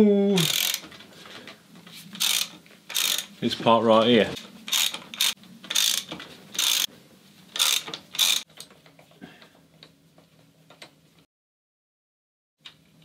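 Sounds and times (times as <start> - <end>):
socket ratchet clicking: 0.4 - 0.9, 2.2 - 3.3, 4.7 - 6.9, 7.6 - 8.5.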